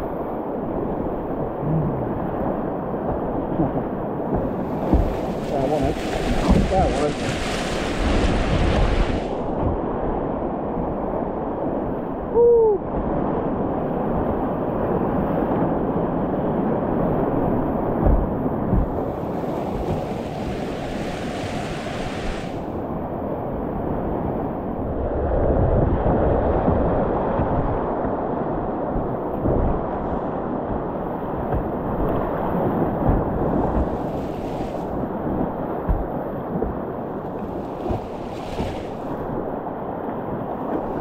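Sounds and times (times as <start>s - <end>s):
low knocks: 3.6s - 5.4s, 18.0s - 20.7s, 33.0s - 34.2s.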